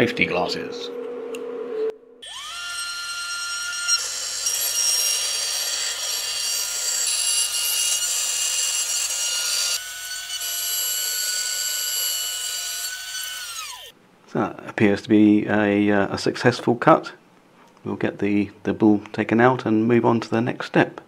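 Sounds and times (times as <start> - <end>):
router spindle whining: 2.2 - 13.9.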